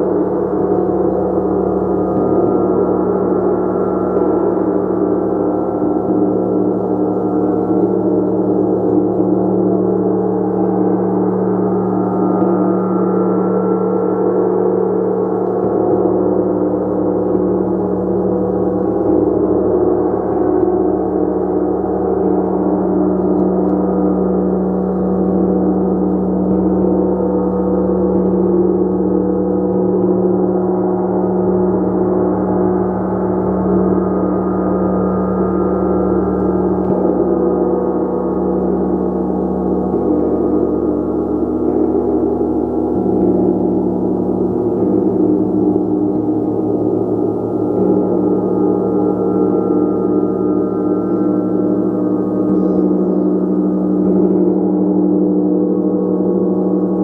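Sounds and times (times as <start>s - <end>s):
deep steady hum: 0.0s - 57.0s
gong ringing: 35.0s - 55.2s.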